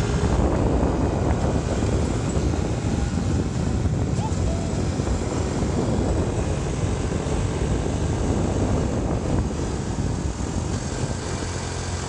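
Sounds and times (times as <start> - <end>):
low rumble of travel: 0.0 - 12.0
wind buffeting microphone: 0.0 - 12.0.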